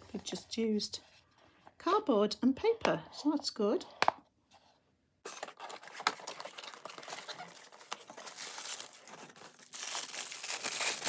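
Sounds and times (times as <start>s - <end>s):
cardboard and paper rustling: 4.6s - 11.0s.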